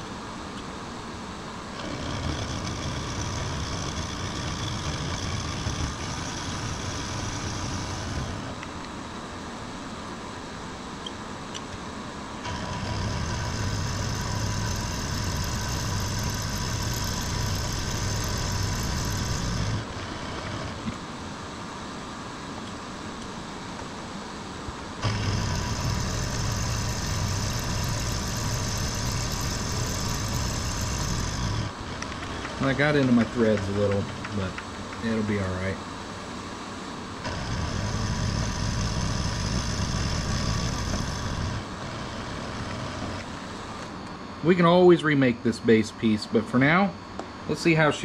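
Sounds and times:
metal cutting with high whine: 1.6s - 8.8s, 12.4s - 21.5s, 24.9s - 36.0s, 37.1s - 48.0s
milling machine motor running: 1.6s - 8.8s, 12.4s - 21.5s, 24.9s - 35.9s, 37.2s - 44.0s.

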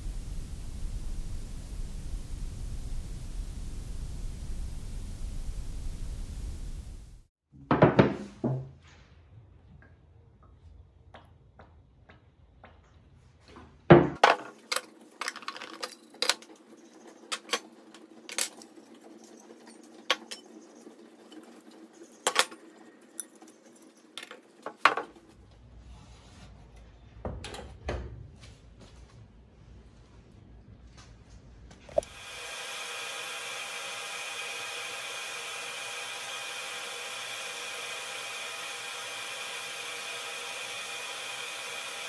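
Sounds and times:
metal parts clinking: 14.2s - 16.5s, 18.3s - 20.6s, 22.1s - 24.5s.

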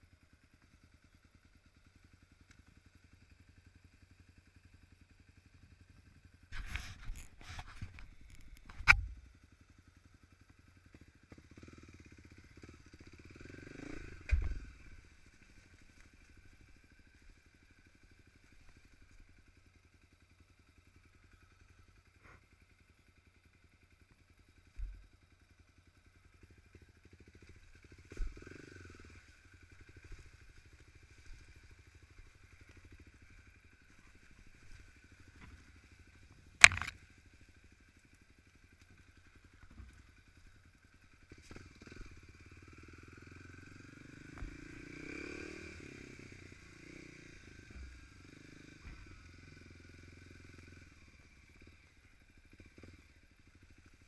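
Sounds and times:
motorcycle engine running: 0.0s - 54.0s
bike knocks and thumps: 36.6s - 37.0s.

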